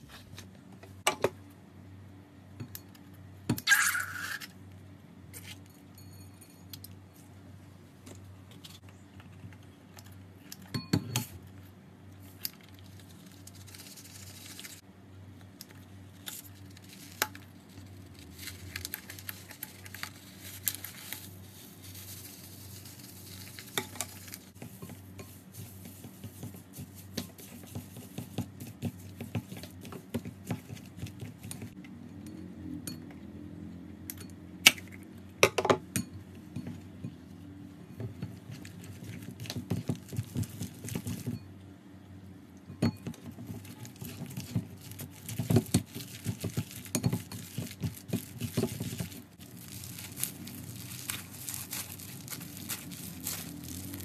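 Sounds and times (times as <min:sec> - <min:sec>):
foam beads crackling and popping: 0:12.3 - 0:14.8, 0:16.2 - 0:29.2, 0:43.5 - 0:54.0
spatula tapping and scraping glass: 0:45.4 - 0:49.1.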